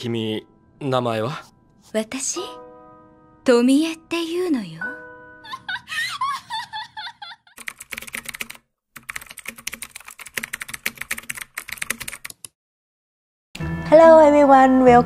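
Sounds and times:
high giggling laugh: 5.4s - 7.6s
keyboard typing clicks: 7.6s - 12.5s.

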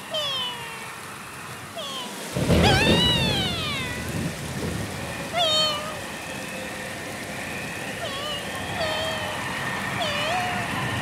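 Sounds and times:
cat meowing: 0.0s - 1.0s, 1.7s - 4.2s, 5.3s - 6.0s, 8.0s - 11.0s.

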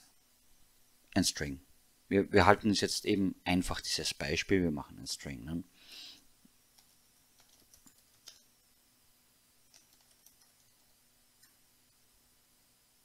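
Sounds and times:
faint steady hum: 0.0s - 13.0s
keyboard typing clicks: 6.7s - 8.5s, 9.7s - 11.6s.

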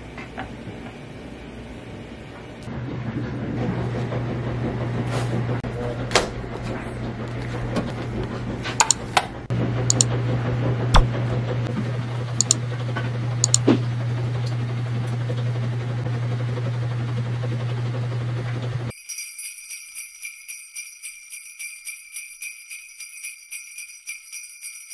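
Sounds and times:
sharp clicks and taps: 8.8s - 9.0s, 12.4s - 12.6s, 13.4s - 13.6s.

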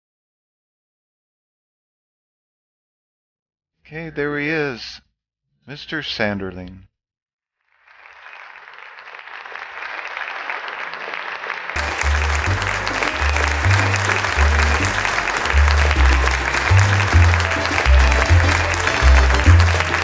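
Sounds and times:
applause: 7.6s - 20.0s
closing music with bass line: 11.8s - 20.0s.

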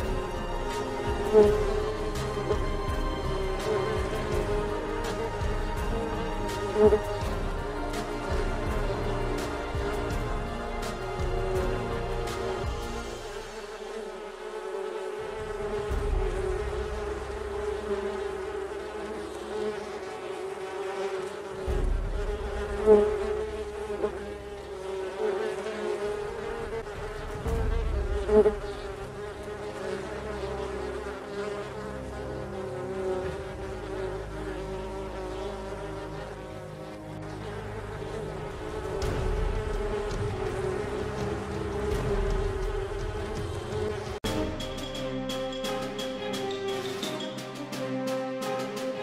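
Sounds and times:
bees buzzing: 0.0s - 49.0s.

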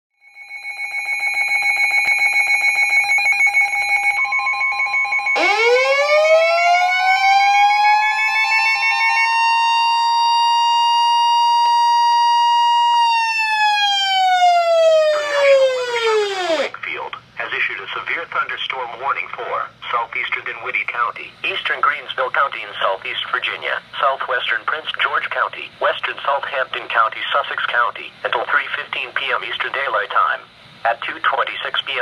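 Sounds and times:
siren-like tone winding: 0.2s - 16.7s
steady warning tone: 0.3s - 16.8s.

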